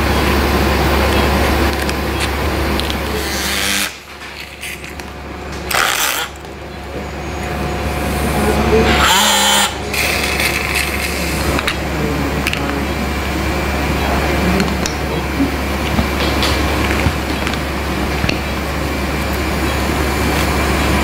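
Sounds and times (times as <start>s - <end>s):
surgical power tool bursts: 3.2s - 5.0s, 5.7s - 6.4s, 8.9s - 11.6s.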